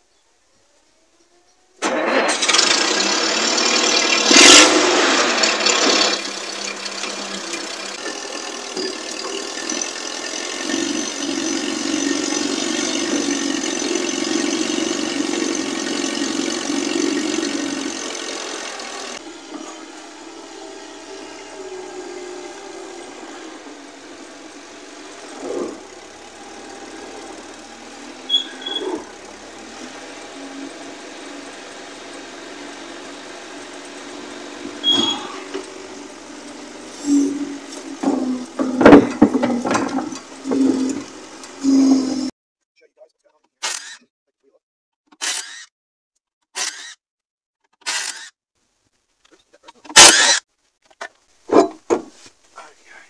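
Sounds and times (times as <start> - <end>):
forklift engine running: 1.8 - 42.3.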